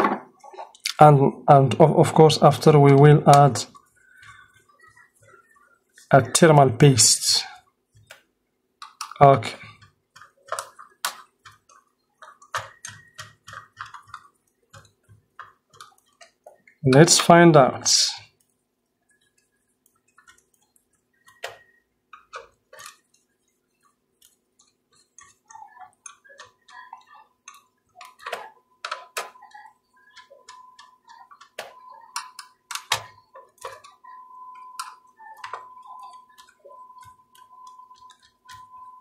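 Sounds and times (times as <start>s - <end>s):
faint steady hum: 0.0s - 39.0s
thin steady tone: 19.0s - 39.0s.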